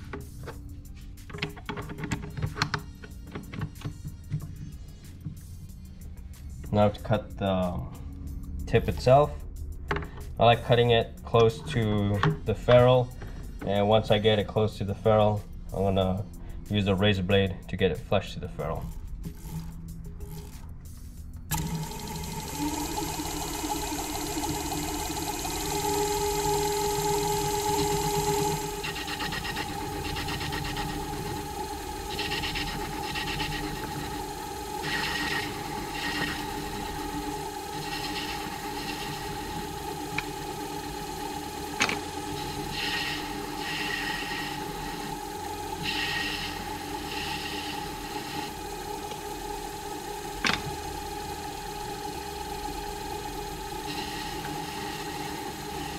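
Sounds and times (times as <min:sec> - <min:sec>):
lathe running: 0:18.7 - 0:55.9
cutting tool scraping: 0:27.7 - 0:31.4.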